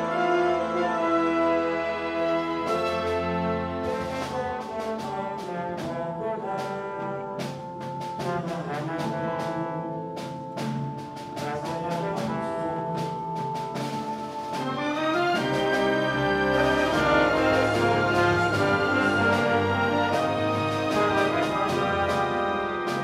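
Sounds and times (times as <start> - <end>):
symphony orchestra with brass: 0.0 - 23.0.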